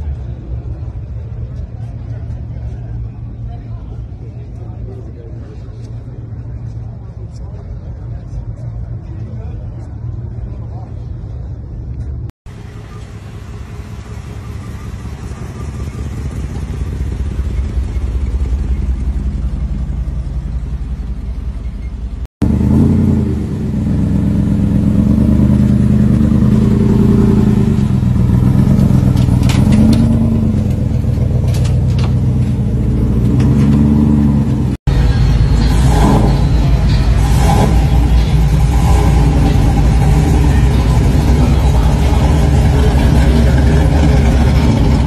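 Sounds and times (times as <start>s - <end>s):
car engine rumbling: 0.0s - 45.0s
car engine revving: 12.6s - 45.0s.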